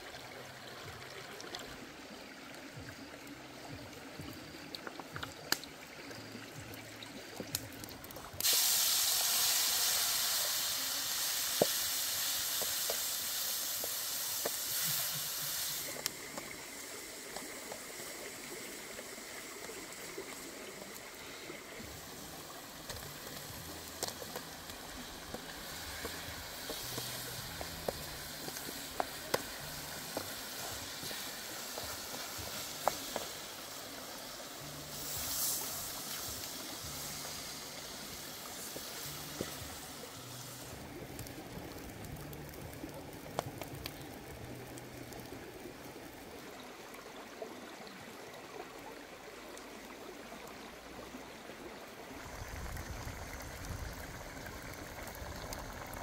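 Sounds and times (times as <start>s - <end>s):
loud hiss: 8.4s - 19.5s, 25.5s - 40.8s
creek water rushing: 10.6s - 56.0s.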